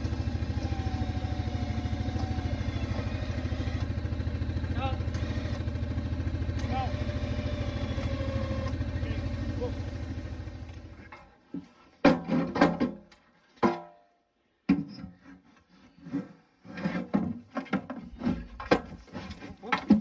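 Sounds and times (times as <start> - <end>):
quad bike engine idling: 0.0 - 11.1
knocking and scraping on aluminium: 11.0 - 14.0, 14.7 - 20.0.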